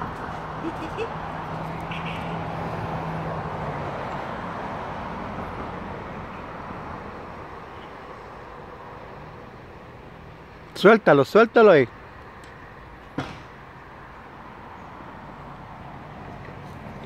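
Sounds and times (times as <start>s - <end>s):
vehicle passing by: 0.0s - 11.2s.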